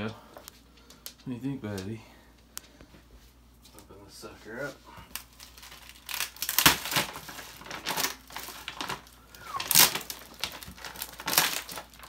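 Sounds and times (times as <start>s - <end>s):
plastic wrapping crinkling: 4.4s - 12.0s.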